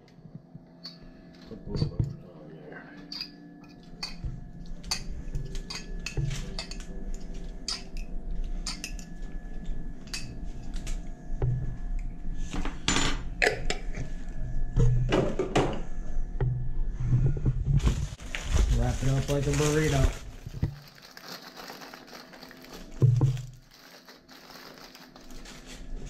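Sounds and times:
fork clinking against glass jar: 0:03.1 - 0:03.4, 0:04.0 - 0:04.2, 0:07.7 - 0:09.1.

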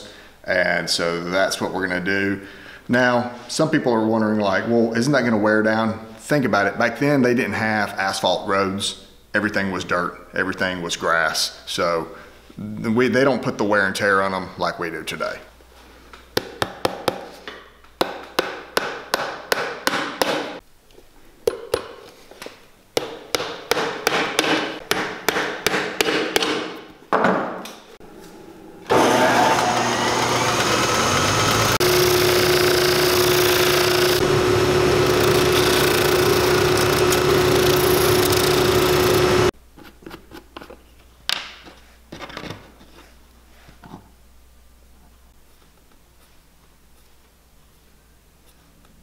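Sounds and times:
hammer striking nails: 0:18.0 - 0:20.6, 0:23.0 - 0:27.4
steady machine whine: 0:28.0 - 0:39.5
shoe finishing machine running: 0:28.8 - 0:39.5.

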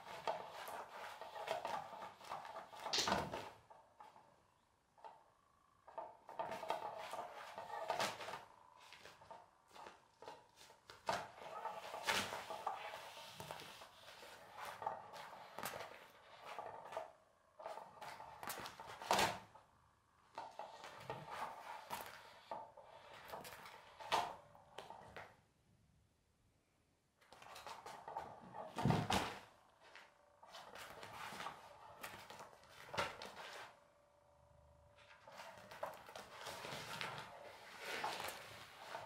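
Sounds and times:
fabric rustling and scraping: 0:06.4 - 0:19.5, 0:27.4 - 0:33.8, 0:35.0 - 0:39.0.

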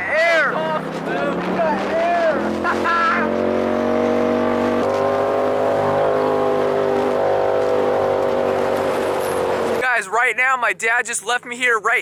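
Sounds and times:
engine running through loud exhaust: 0:00.4 - 0:09.8.

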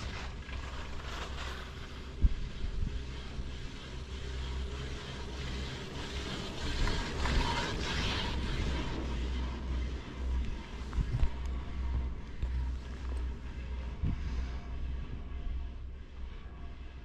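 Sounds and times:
chairlift grip running through sheaves: 0:00.0 - 0:14.5
low rumble: 0:00.0 - 0:17.0.

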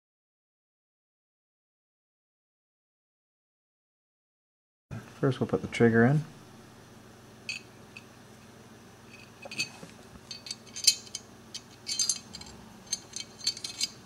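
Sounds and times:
light metal clicks and clinks: 0:09.1 - 0:14.0.

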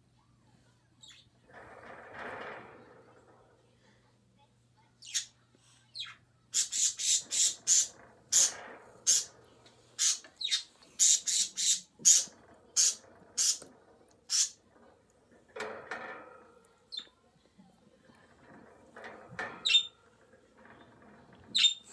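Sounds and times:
budgerigars chirping and squawking: 0:06.0 - 0:08.5, 0:10.0 - 0:13.6.

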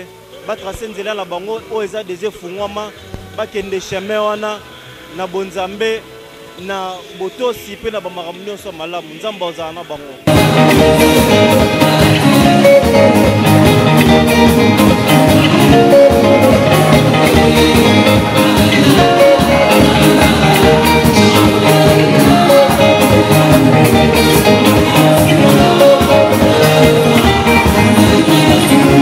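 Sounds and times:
live band dance music: 0:10.2 - 0:29.0
women singing: 0:17.3 - 0:29.0.

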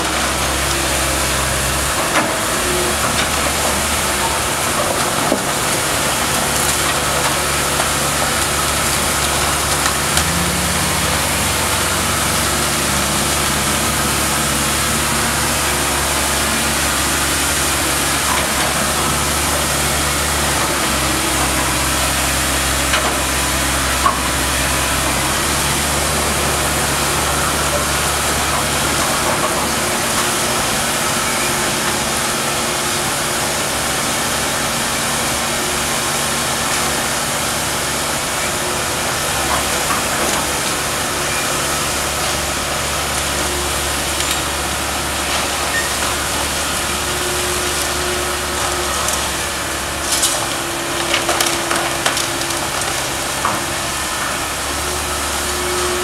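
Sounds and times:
excavator diesel engine under load: 0:00.0 - 0:56.0
debris breaking cracks: 0:50.0 - 0:53.9.

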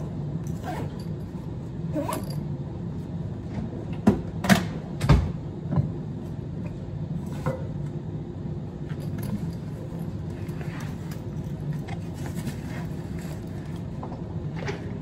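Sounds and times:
steady low hum: 0:00.0 - 0:15.0
bag rustling: 0:09.0 - 0:13.9.

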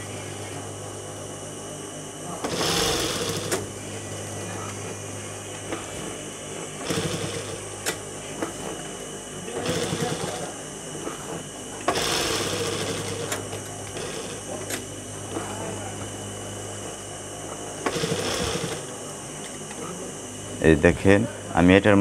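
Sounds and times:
steady low hum: 0:00.0 - 0:22.0
sewing machine stitching: 0:02.4 - 0:03.6, 0:06.8 - 0:07.6, 0:09.5 - 0:10.5, 0:11.9 - 0:14.5, 0:17.8 - 0:18.9.

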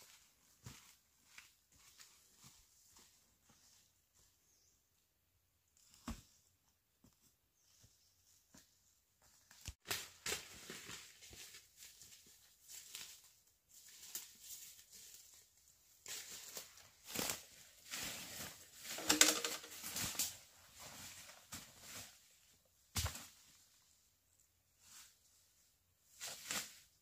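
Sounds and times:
rustling and handling noises: 0:05.8 - 0:24.0.

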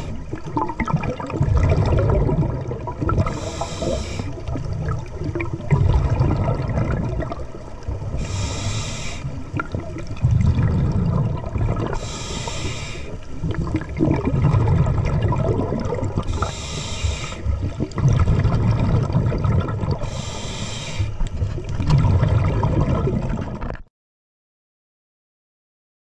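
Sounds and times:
rumble of exhaled bubbles: 0:00.0 - 0:20.2, 0:21.1 - 0:23.9
hissing regulator inhale: 0:03.2 - 0:04.5, 0:08.1 - 0:09.5, 0:11.9 - 0:13.4, 0:16.2 - 0:17.6, 0:20.0 - 0:21.3.

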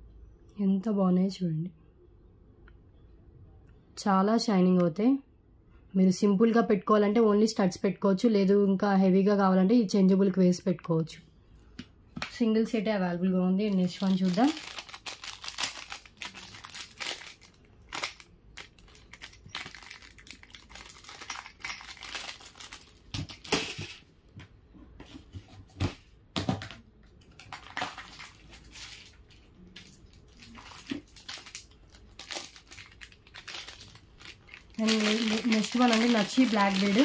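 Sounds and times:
plastic packaging crinkling: 0:13.6 - 0:23.9, 0:26.7 - 0:37.0.

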